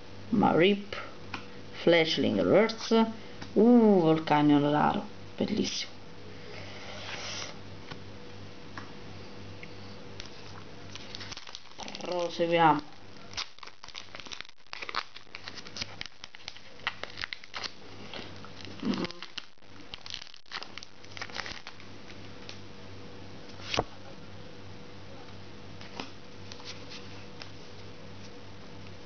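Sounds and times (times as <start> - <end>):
foil wrapper crinkling and tearing: 10.2 - 22.6.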